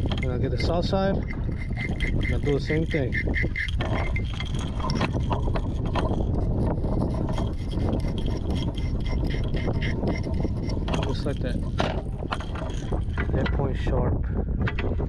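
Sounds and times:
low rumble: 0:00.0 - 0:15.0
hook scraping on sharpening stone: 0:00.2 - 0:06.2, 0:07.0 - 0:11.8.

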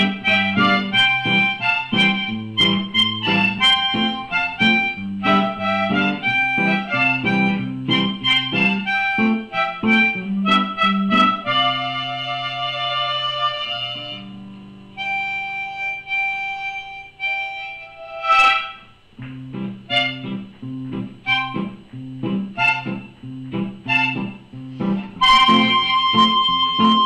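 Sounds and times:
long held reedy notes: 0:00.0 - 0:27.0
plucked notes: 0:00.0 - 0:27.0.

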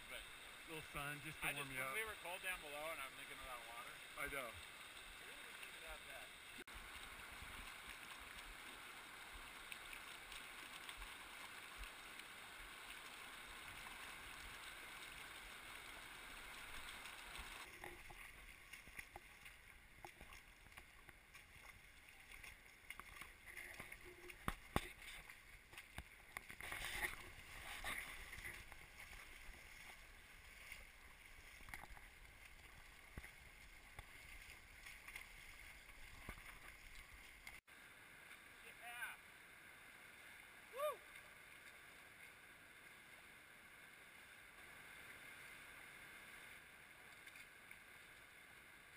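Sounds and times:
river water running over rocks: 0:00.0 - 0:48.9
splashes from people wading: 0:00.7 - 0:37.6.

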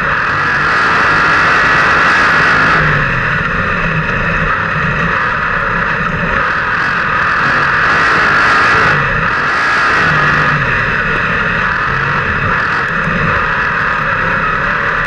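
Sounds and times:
race car engine running hard: 0:00.0 - 0:15.0.

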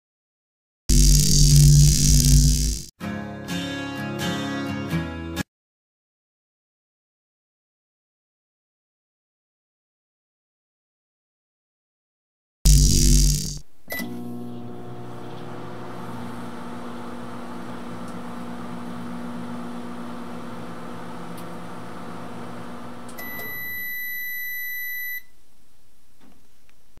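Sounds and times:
microwave oven humming: 0:12.7 - 0:24.4
long high microwave beep: 0:23.2 - 0:25.3.

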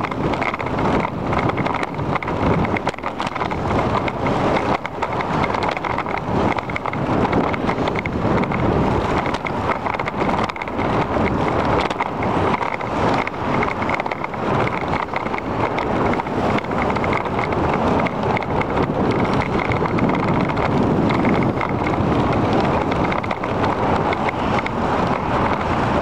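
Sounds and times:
light regular ticking: 0:00.0 - 0:26.0
wind buffeting microphone: 0:00.0 - 0:26.0.

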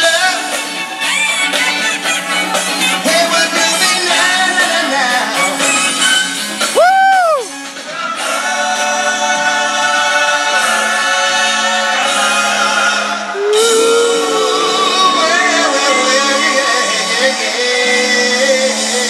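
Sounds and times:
live rock band playing: 0:00.0 - 0:08.4
voices singing together: 0:07.6 - 0:19.0
guitar rising slide: 0:13.4 - 0:16.0.

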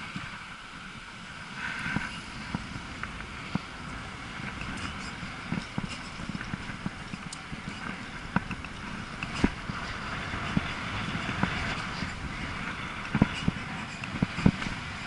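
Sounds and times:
bike rolling with wind noise: 0:00.0 - 0:15.0
bike knocks and rattles: 0:04.4 - 0:15.0.

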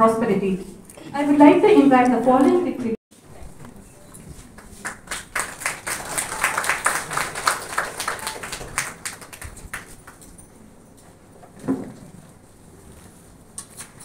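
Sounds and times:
people clapping: 0:04.3 - 0:10.4.

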